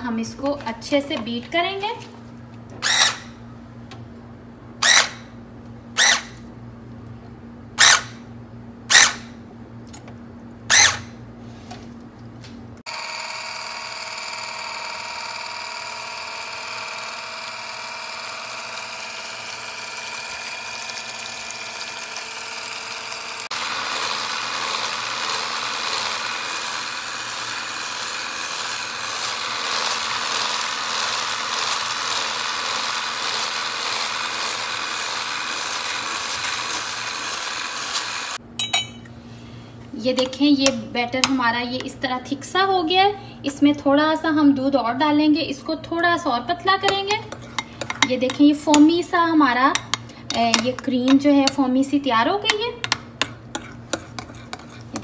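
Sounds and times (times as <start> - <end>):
electric hand mixer whining: 12.8 - 38.4.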